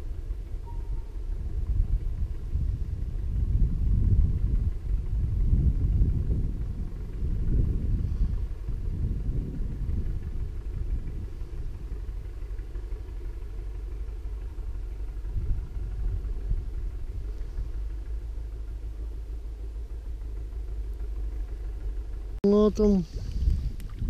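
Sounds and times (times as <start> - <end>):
low steady rumbling: 0.0 - 24.0.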